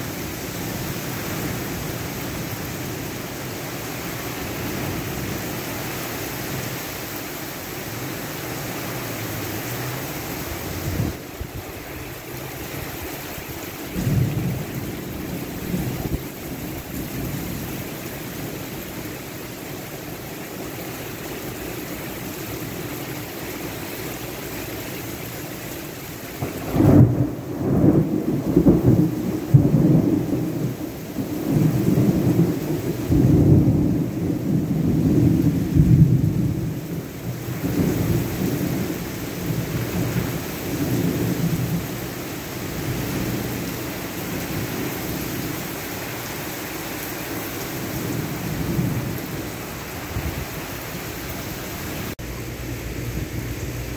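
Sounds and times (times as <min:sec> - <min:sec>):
heavy rain on pavement: 0:00.0 - 0:53.9
thunder rumbling: 0:10.4 - 0:19.3, 0:26.4 - 0:45.7, 0:47.4 - 0:53.9.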